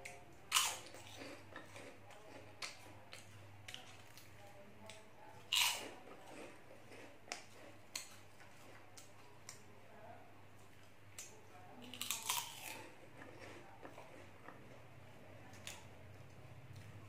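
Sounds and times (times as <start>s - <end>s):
corn snacks crunching: 0.5s - 4.3s, 5.5s - 9.1s, 11.8s - 14.6s.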